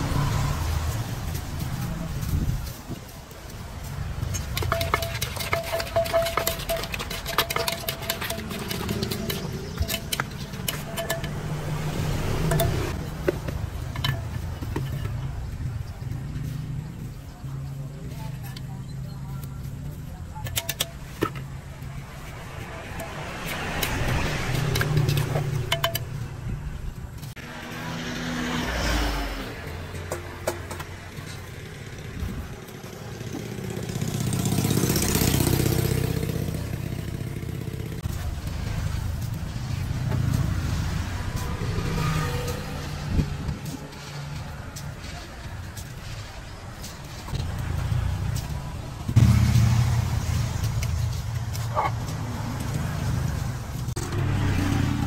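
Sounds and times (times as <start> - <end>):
passing vehicle engines: 0.0 - 55.0
utensils scraping clay mortar: 4.0 - 15.5, 18.4 - 26.3.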